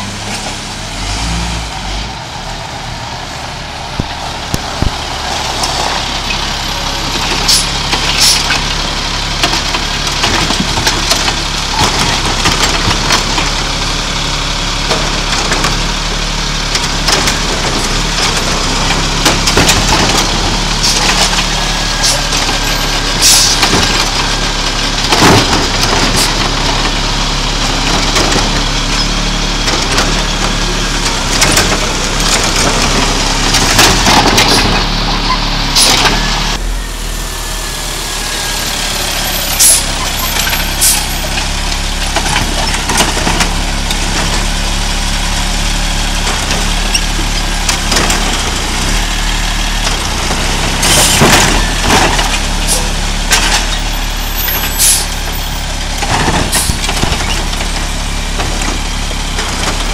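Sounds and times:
garbage truck engine running: 0:00.0 - 0:59.9
hydraulic arm lifting cart: 0:03.7 - 0:59.9
cart and trash clattering: 0:16.7 - 0:36.8, 0:37.8 - 0:59.9.

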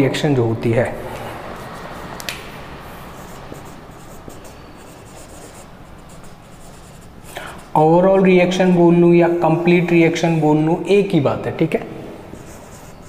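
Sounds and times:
marker scratching on whiteboard: 0:01.0 - 0:07.7, 0:12.3 - 0:13.0.

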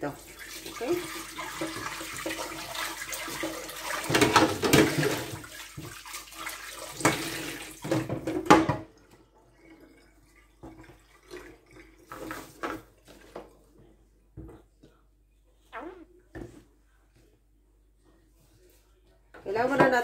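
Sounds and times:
tap water running into metal sink: 0:00.3 - 0:12.8
metal bowl clanking against sink: 0:03.4 - 0:05.5.

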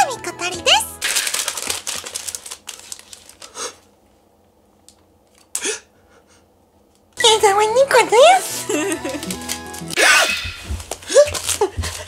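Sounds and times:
plastic packaging crinkling: 0:01.0 - 0:03.8, 0:08.4 - 0:10.0, 0:10.6 - 0:12.0.

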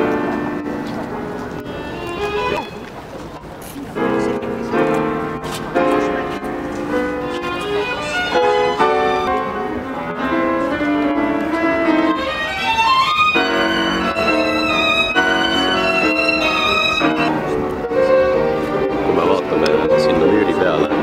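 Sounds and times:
violin melody: 0:00.0 - 0:21.0.

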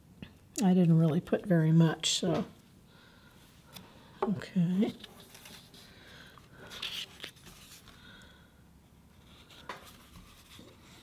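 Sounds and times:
paper rustling: 0:05.0 - 0:08.0.

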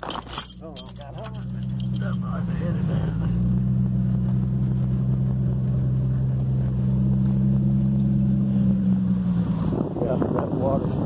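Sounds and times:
vehicle engine and road hum: 0:00.0 - 0:11.0.

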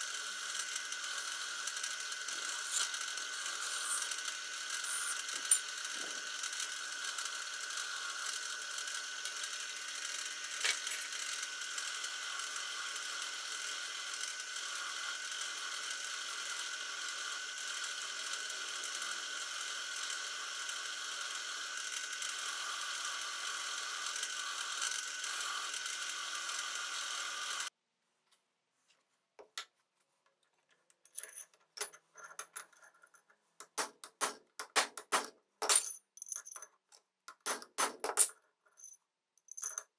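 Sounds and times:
drill press wire brush whirring: 0:00.0 - 0:27.7.

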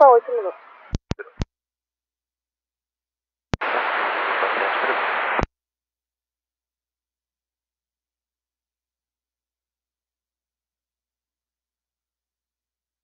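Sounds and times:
radio static hiss: 0:00.0 - 0:01.4, 0:03.6 - 0:05.5
radio squelch clicks: 0:00.8 - 0:01.5.

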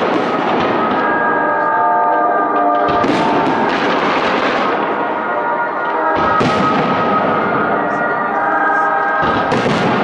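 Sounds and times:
fireworks crackling and popping: 0:02.8 - 0:05.0.

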